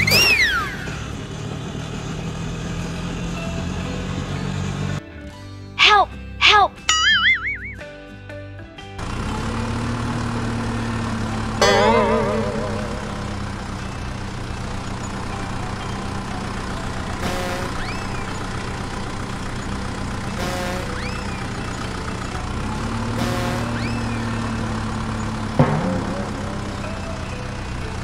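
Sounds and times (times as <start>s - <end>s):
rising and falling whistle: 0.0s - 1.1s, 6.9s - 7.8s
truck engine idling: 9.0s - 28.0s.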